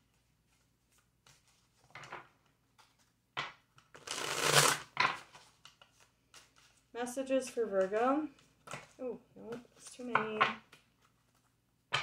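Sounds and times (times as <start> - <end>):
cards shuffling flutter: 4.0 - 6.8.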